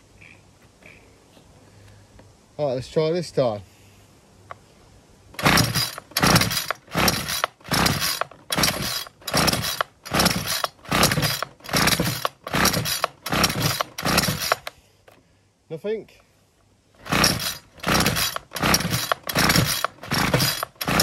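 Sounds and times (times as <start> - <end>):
pull-starter whirring: 5.4 - 14.8, 17.0 - 21.0.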